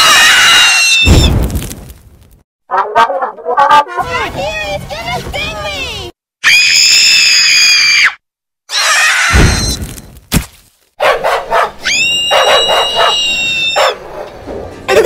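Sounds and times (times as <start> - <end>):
low thud: 1.0 - 2.2
falling cries: 6.4 - 9.8, 11.8 - 13.8
dog barking and yelping: 11.0 - 14.4.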